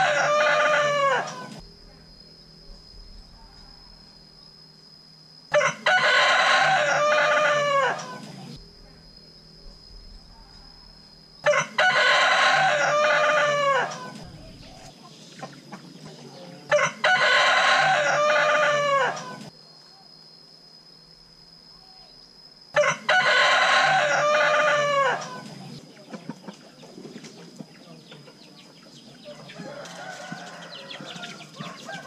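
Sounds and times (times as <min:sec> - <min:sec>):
rooster crowing: 0:00.0 - 0:01.6, 0:05.5 - 0:08.4, 0:11.4 - 0:14.7, 0:16.3 - 0:19.5, 0:22.7 - 0:25.6, 0:29.3 - 0:32.0.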